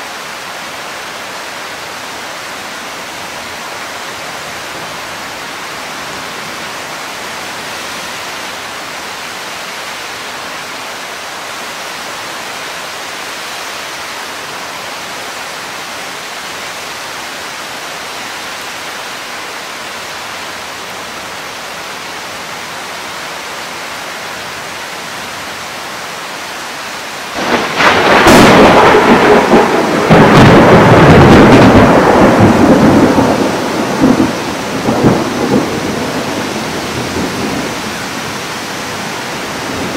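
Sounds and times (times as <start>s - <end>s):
heavy rain hissing: 0.0s - 39.9s
thunderclap and rolling thunder: 27.4s - 38.3s.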